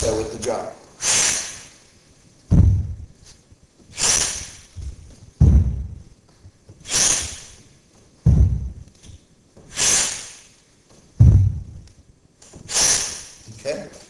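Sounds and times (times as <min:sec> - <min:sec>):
sharp breath: 0:01.0 - 0:01.8, 0:03.9 - 0:04.7, 0:06.8 - 0:07.6, 0:09.7 - 0:10.6, 0:12.7 - 0:13.5
kettlebell thudding against chest: 0:02.5 - 0:03.2, 0:04.8 - 0:06.1, 0:08.2 - 0:08.9, 0:11.2 - 0:11.8.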